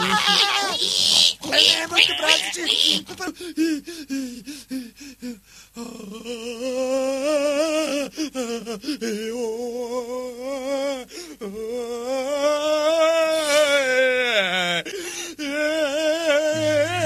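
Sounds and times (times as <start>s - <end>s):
person humming with vibrato: 16.2s - 17.0s.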